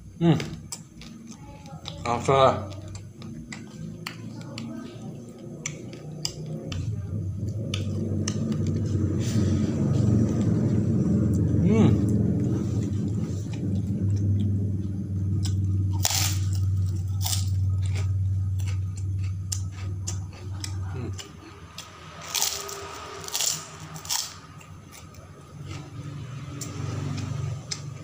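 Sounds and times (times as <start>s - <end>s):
low steady hum: 0.0s - 28.0s
crunching fried crackers: 0.3s - 9.2s, 15.4s - 28.0s
person chewing: 0.4s - 28.0s.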